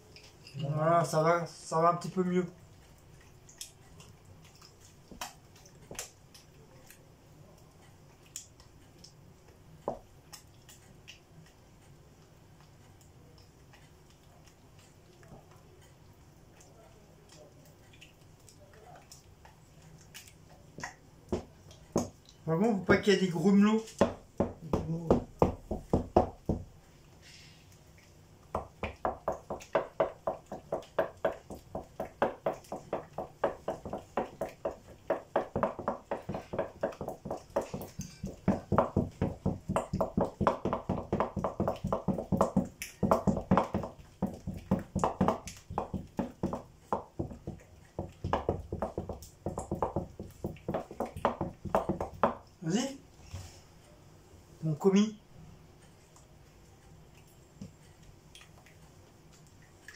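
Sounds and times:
wooden spoon beating batter: 3.6 - 6.4, 9.8 - 11.6, 20.0 - 26.8, 28.4 - 52.6.

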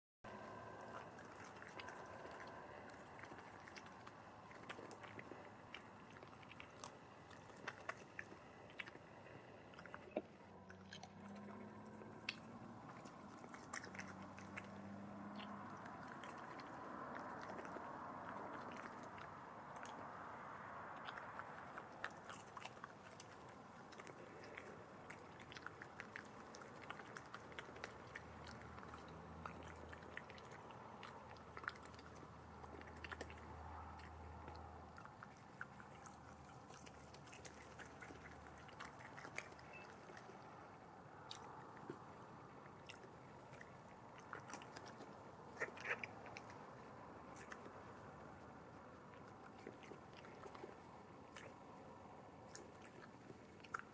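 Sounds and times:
badger chewing: 0.3 - 53.9.

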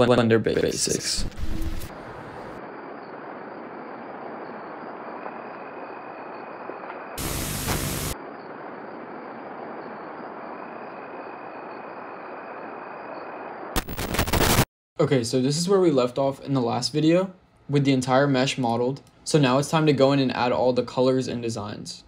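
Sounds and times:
static hiss: 6.9 - 8.2, 13.8 - 14.7.

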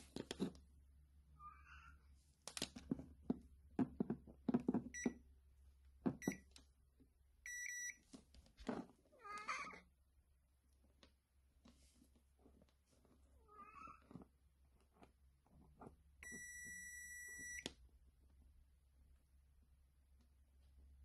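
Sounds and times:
cat meowing: 1.4 - 2.0, 9.2 - 9.8, 13.4 - 14.1
multimeter continuity beeps: 7.5 - 8.0, 16.2 - 17.7.

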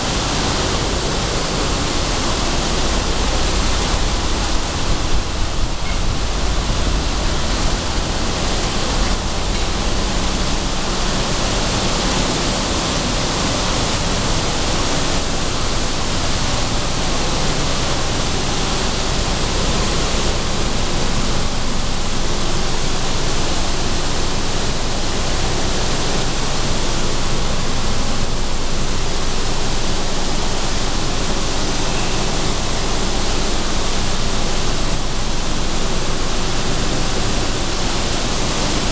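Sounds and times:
low rumble: 2.2 - 11.6.

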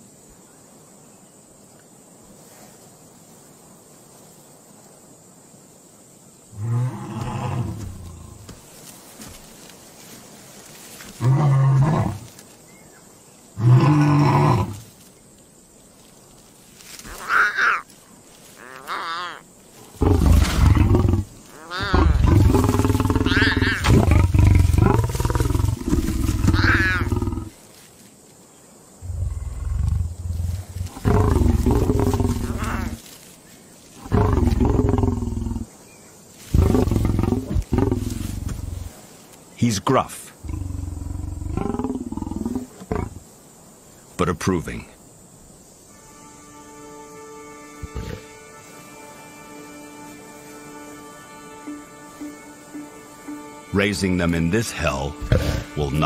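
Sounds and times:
lion growling and grunting: 6.6 - 8.5, 11.2 - 12.3, 13.6 - 14.8, 19.9 - 27.6, 29.0 - 33.0, 34.0 - 35.7, 36.5 - 38.9, 40.4 - 43.2, 55.2 - 56.0.

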